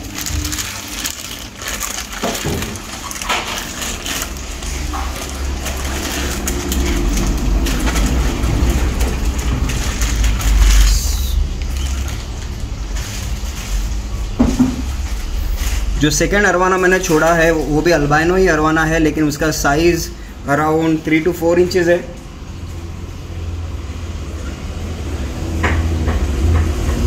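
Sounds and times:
low rumble: 0.0 - 16.7
plastic bag crinkling: 0.0 - 23.1.

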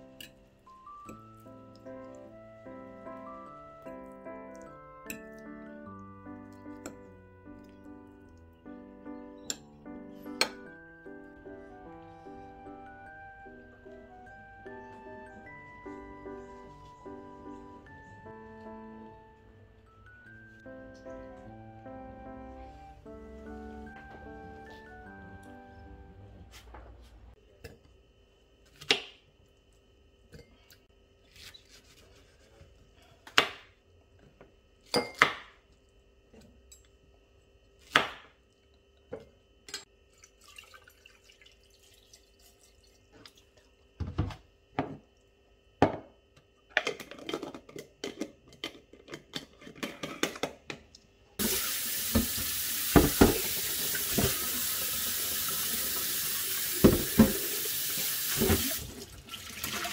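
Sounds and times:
tap running into metal sink: 51.4 - 54.6, 56.7 - 59.0.

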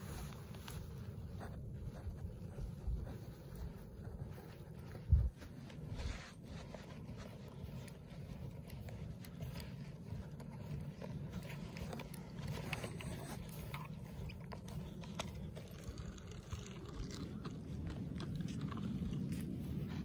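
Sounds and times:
footsteps crunching in snow: 0.0 - 20.0
steady low rumble: 0.0 - 20.0.

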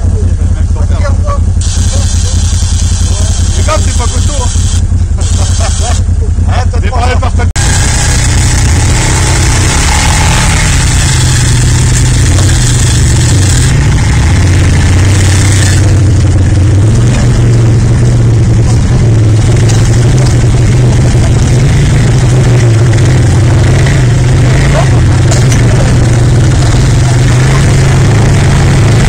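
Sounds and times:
quad engine running: 0.0 - 29.0.

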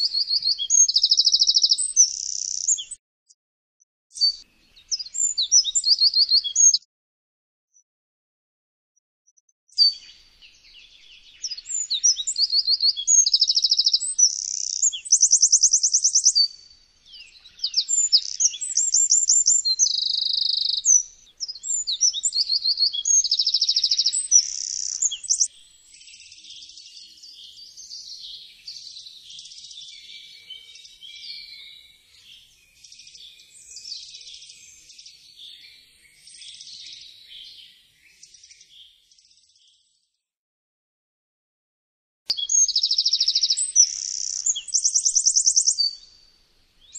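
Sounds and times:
wren singing trills: 0.0 - 3.0, 4.1 - 6.8, 9.7 - 38.8, 42.3 - 46.9.

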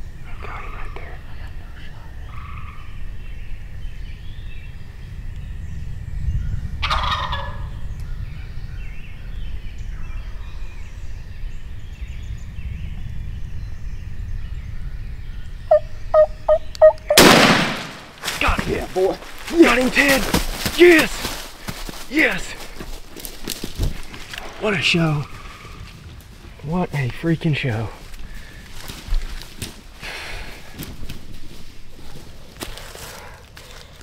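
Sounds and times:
turkey gobbling: 6.8 - 7.6, 15.7 - 17.3.

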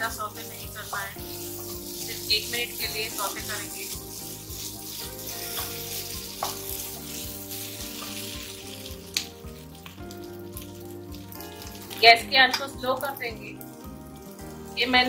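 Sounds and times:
vegetables sizzling in oil: 0.0 - 15.0
wooden spatula knocking on pan: 6.4 - 6.7.

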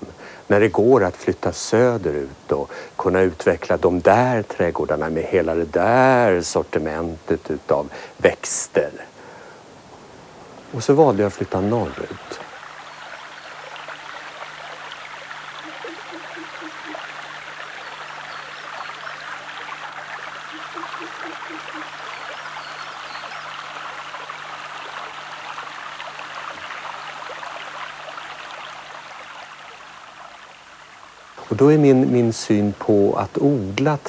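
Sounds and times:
stream running over stones: 9.8 - 34.0.

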